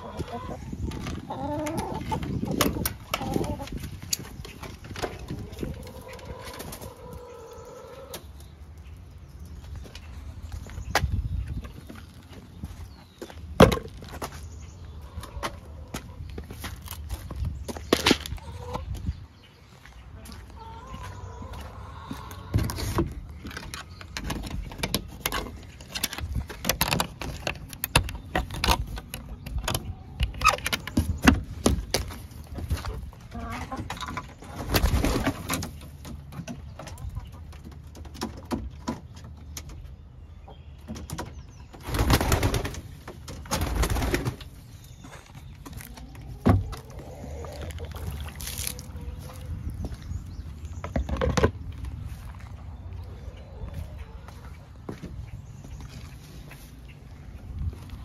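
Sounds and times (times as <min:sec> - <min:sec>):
birds calling: 0:00.0 - 0:58.0
knocks and clicks of coop fittings: 0:13.6 - 0:14.0, 0:22.5 - 0:40.0, 0:40.8 - 0:44.5.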